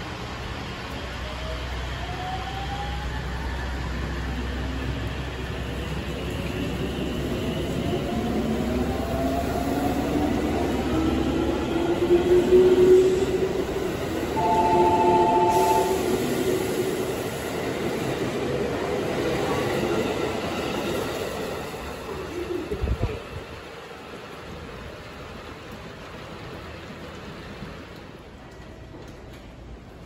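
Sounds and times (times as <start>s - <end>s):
train wheels rumbling on rails: 0.0s - 30.0s
two-note tone: 14.4s - 16.2s.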